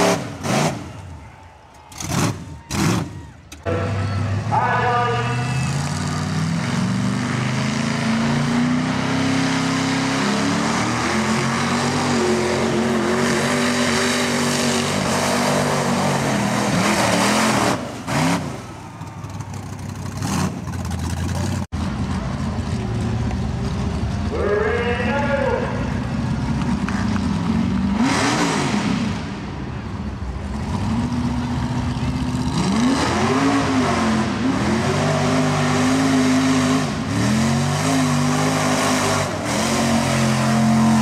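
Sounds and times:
truck engine revving: 0:00.0 - 0:01.3, 0:01.9 - 0:41.0
truck engine running steadily: 0:00.0 - 0:41.0.

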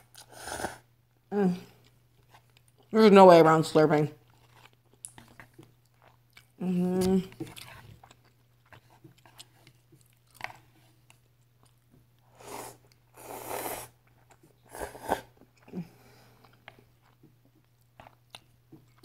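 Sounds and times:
person slurping noodles: 0:00.1 - 0:00.8, 0:12.4 - 0:14.0, 0:14.7 - 0:15.4
wet chewing clicks: 0:04.2 - 0:11.8.

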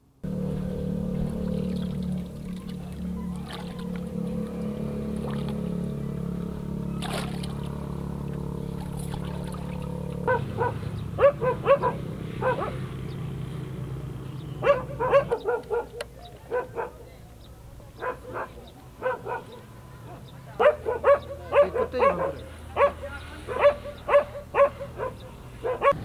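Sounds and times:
steady low hum: 0:00.0 - 0:16.0
dog barking and yelping: 0:10.2 - 0:12.9, 0:14.6 - 0:17.0, 0:18.0 - 0:26.0.

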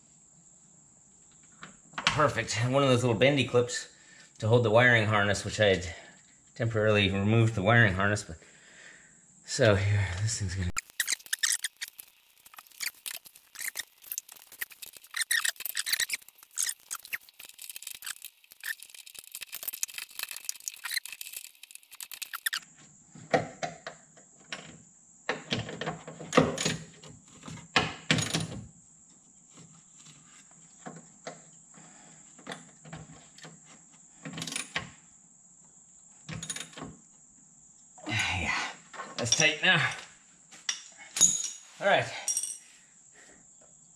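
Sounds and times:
wrench squeaking and clicking: 0:10.8 - 0:22.6.

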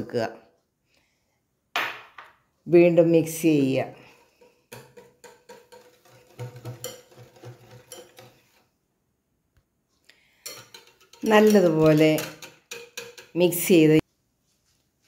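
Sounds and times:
whisk clinking against glass bowl: 0:04.7 - 0:08.6, 0:10.4 - 0:13.6.

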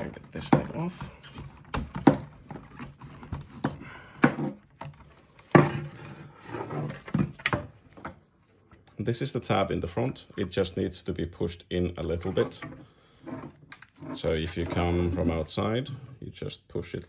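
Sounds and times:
plastic cover clicks and knocks: 0:00.4 - 0:06.0.

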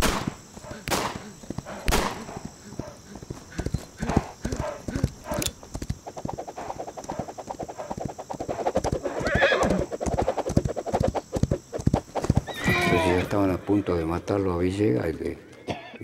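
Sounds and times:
horse hooves galloping: 0:00.0 - 0:13.2
horse whinny: 0:09.2 - 0:09.8, 0:12.4 - 0:13.4.

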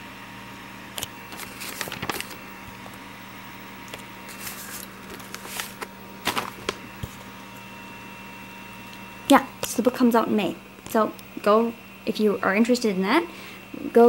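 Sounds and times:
low electrical hum: 0:00.0 - 0:14.0
paper and envelope rustling: 0:01.0 - 0:03.0, 0:03.8 - 0:07.4.

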